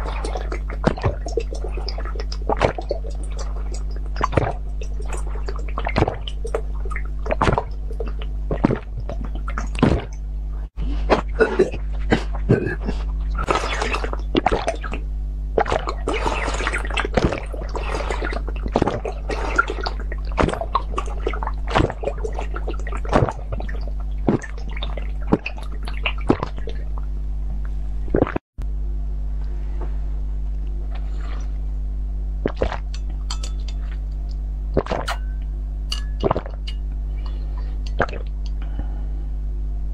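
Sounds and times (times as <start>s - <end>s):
person gulping and slurping: 0.0s - 10.2s, 10.8s - 15.0s, 15.6s - 27.0s, 28.1s - 28.4s, 30.9s - 31.6s, 32.4s - 39.0s
low electrical hum: 0.0s - 39.9s
glass clicking: 35.0s - 36.8s.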